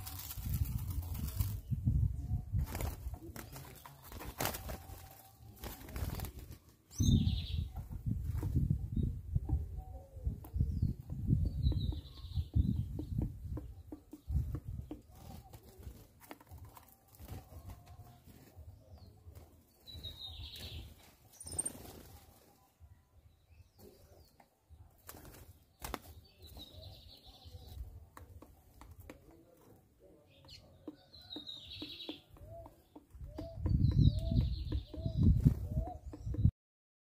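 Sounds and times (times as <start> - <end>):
dove wings flapping: 0.0 - 1.7, 2.6 - 6.9, 14.3 - 18.4, 20.6 - 22.6, 25.0 - 26.8
small birds chirping: 0.0 - 36.5.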